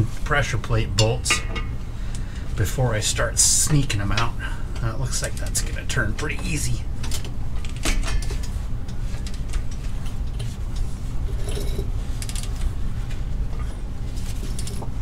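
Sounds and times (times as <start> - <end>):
steady low hum: 0.0 - 15.0
hand tools clinking on metal: 1.0 - 1.8.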